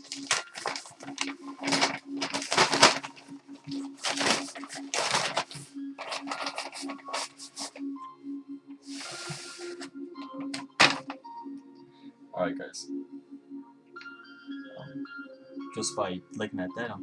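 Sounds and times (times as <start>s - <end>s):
plastic mailing bag crinkling: 0.0s - 7.8s, 8.9s - 11.2s.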